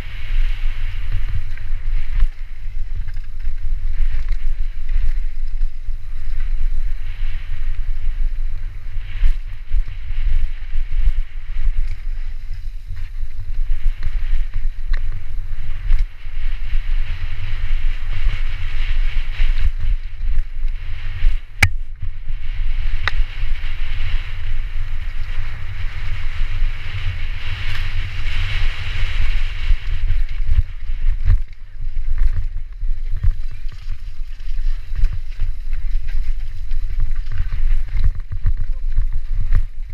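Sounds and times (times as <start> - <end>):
wind buffeting microphone: 0.0 - 39.9
tyres rolling over gravel: 28.7 - 39.9.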